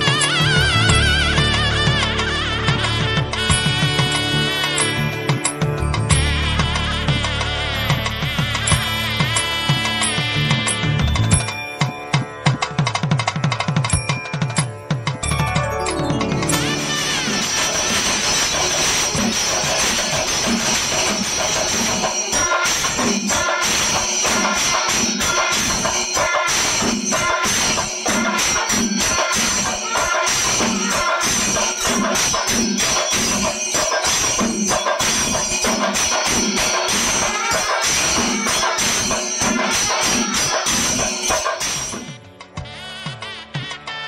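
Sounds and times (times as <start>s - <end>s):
wind instruments holding tones: 0.0s - 12.7s, 14.0s - 44.0s
drums beaten with sticks: 0.0s - 42.7s
cymbals shimmering: 15.2s - 42.2s.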